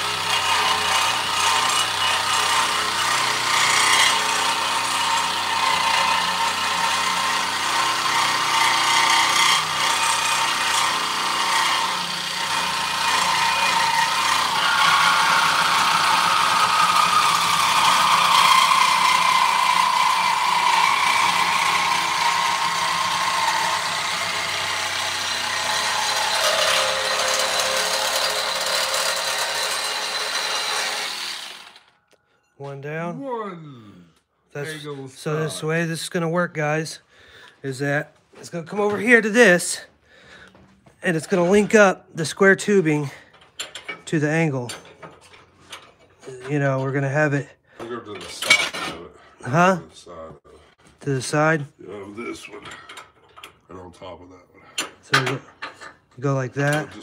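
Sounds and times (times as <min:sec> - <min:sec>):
reciprocating saw cutting steel: 0:00.0 - 0:32.0.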